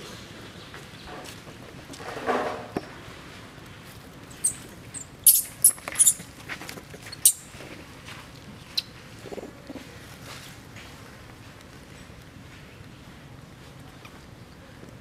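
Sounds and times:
sharp high squeaks: 0:04.3 - 0:06.3, 0:07.0 - 0:07.5
baby monkey crying: 0:04.4 - 0:06.2.

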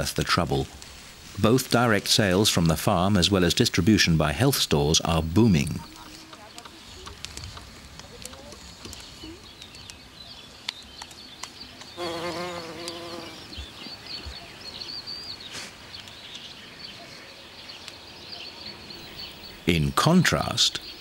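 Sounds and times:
small birds chirping: 0:00.0 - 0:21.0
flying insect buzzing: 0:12.0 - 0:13.6.

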